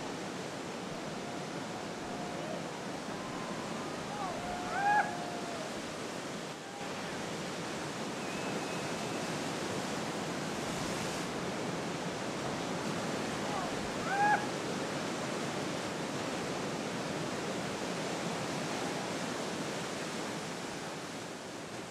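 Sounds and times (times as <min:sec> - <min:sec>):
ocean surf: 0:00.0 - 0:21.9
high rising call: 0:00.9 - 0:05.9.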